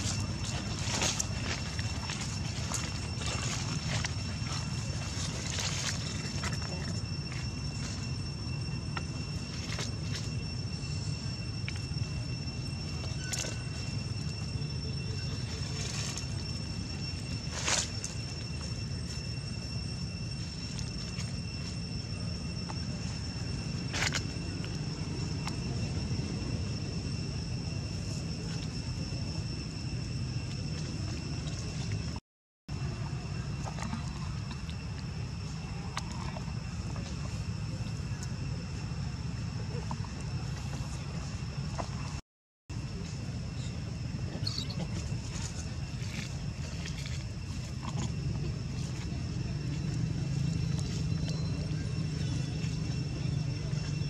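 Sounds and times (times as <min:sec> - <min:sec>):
dry leaves crackling: 0:00.0 - 0:08.2, 0:13.0 - 0:19.3
high-pitched whine: 0:00.0 - 0:54.0.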